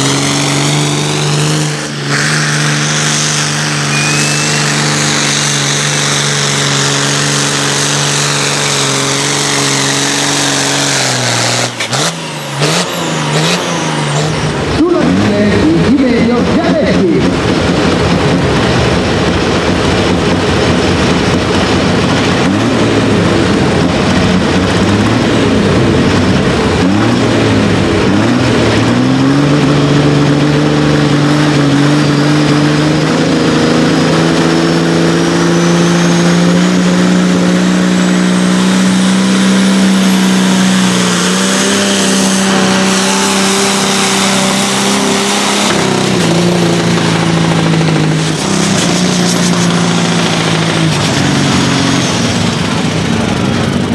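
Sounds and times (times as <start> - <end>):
tractor diesel engine revving: 0.0 - 53.9
high whistle rising in pitch: 2.1 - 5.4.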